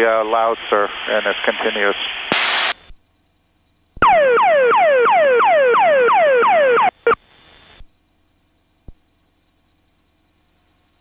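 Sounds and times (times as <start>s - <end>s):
radio hiss: 0.0s - 2.9s
short radio blip: 2.3s - 2.8s
siren-like tone sweeping downward: 4.0s - 7.1s.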